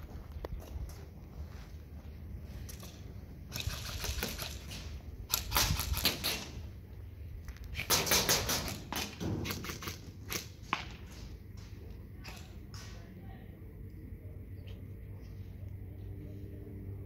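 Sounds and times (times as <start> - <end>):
airsoft guns firing bursts: 3.5 - 6.6, 7.8 - 10.5.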